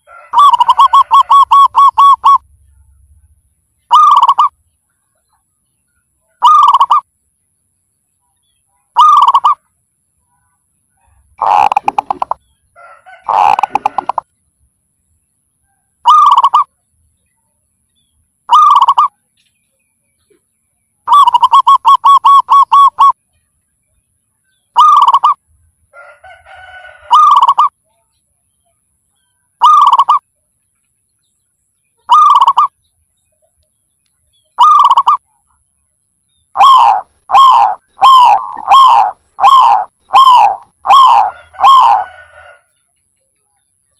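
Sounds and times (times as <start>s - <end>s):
dove cooing: 0.1s - 2.5s, 3.9s - 4.5s, 6.4s - 7.0s, 9.0s - 9.6s, 11.4s - 12.4s, 13.1s - 14.2s, 16.0s - 16.7s, 18.5s - 19.1s, 21.1s - 23.2s, 24.8s - 25.4s, 26.6s - 27.7s, 29.6s - 30.2s, 32.1s - 32.7s, 34.6s - 35.2s, 36.6s - 42.6s
dove staccato trill: 0.4s - 2.5s, 3.9s - 4.6s, 6.4s - 7.1s, 9.0s - 9.6s, 11.4s - 12.4s, 13.2s - 14.2s, 16.1s - 16.7s, 18.5s - 19.1s, 21.1s - 23.2s, 24.8s - 25.4s, 27.1s - 27.7s, 29.6s - 30.2s, 32.1s - 32.7s, 34.6s - 35.2s, 36.5s - 42.3s.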